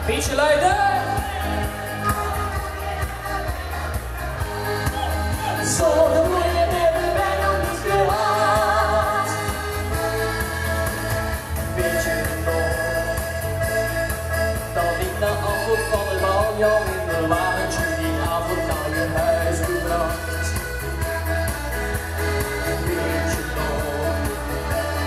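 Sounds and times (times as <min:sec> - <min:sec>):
backing music with bass beat: 0:00.0 - 0:25.0
boy and girl singing pop duet: 0:04.4 - 0:13.4.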